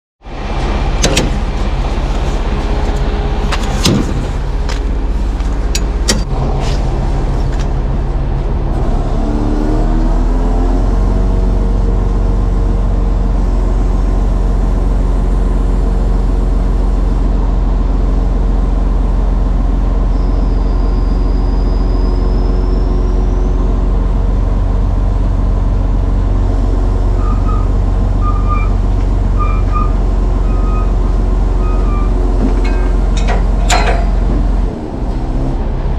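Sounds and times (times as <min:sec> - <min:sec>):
truck diesel engine and hydraulics: 0:00.2 - 0:35.9
brief high squeal: 0:20.1 - 0:23.6, 0:27.2 - 0:28.8, 0:29.4 - 0:32.2
faint short beeps: 0:27.2 - 0:28.8
metal clanks: 0:28.4 - 0:34.6.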